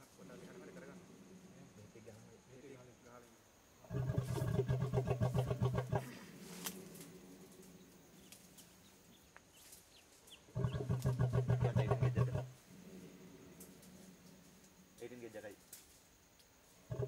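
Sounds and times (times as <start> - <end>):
elephant snoring breaths: 3.9 - 7.5, 10.6 - 14.6
faint bird chirps: 7.2 - 11.0.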